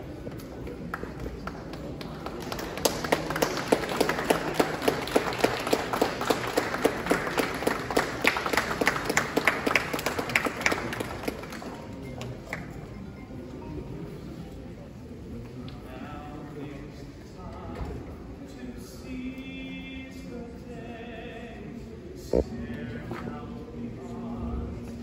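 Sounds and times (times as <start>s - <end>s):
audience clapping: 0.3s - 12.7s
close sharp claps: 0.4s - 12.7s.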